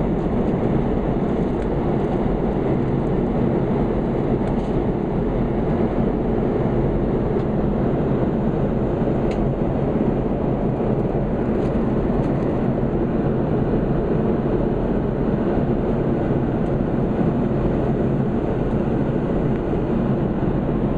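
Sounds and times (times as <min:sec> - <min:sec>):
airliner cabin engine rumble: 0:00.0 - 0:20.9.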